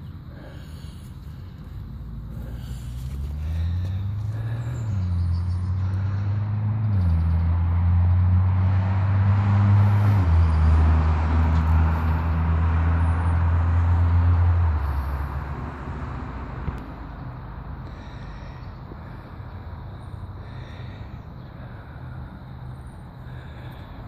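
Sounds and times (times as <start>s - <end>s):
vehicle engine humming: 0.0s - 24.0s.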